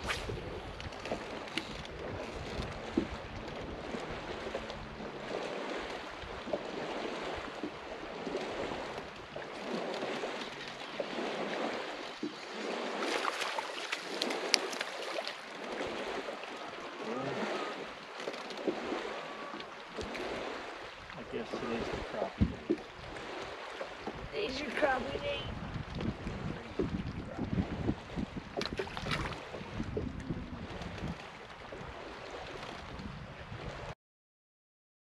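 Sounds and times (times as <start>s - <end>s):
waves lapping against boat hull: 0.0s - 34.0s.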